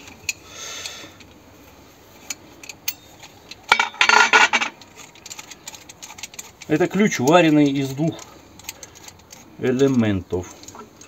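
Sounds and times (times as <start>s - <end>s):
steel hand tools clinking: 2.2s - 10.0s.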